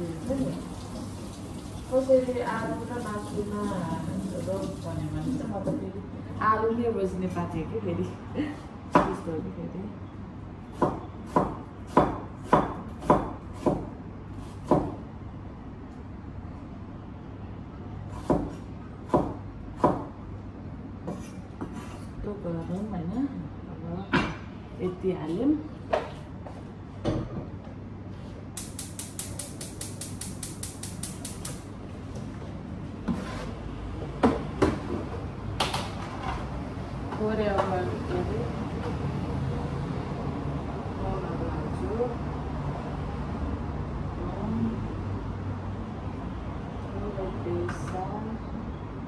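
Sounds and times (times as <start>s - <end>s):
knife chopping on cutting board: 10.8s - 15.0s, 18.1s - 20.1s.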